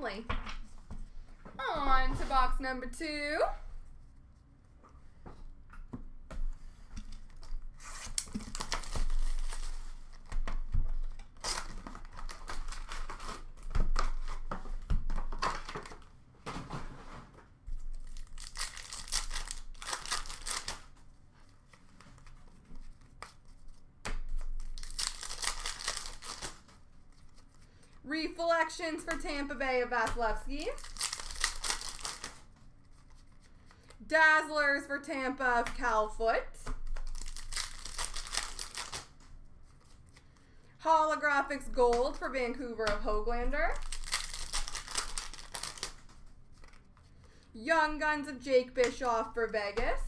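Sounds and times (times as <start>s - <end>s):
handling of cards and packaging: 5.8s - 28.0s, 29.0s - 34.0s, 35.6s - 40.7s, 41.6s - 47.5s
wrapper tearing and crinkling: 7.8s - 10.3s, 11.0s - 14.4s, 17.9s - 21.0s, 24.6s - 26.7s, 30.7s - 32.5s, 36.9s - 39.2s, 43.7s - 46.9s.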